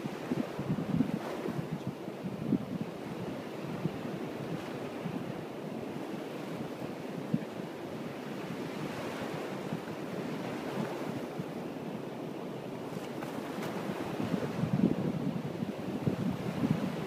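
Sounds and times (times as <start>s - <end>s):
wind rumbling on microphone: 0.0s - 12.0s, 12.8s - 17.0s.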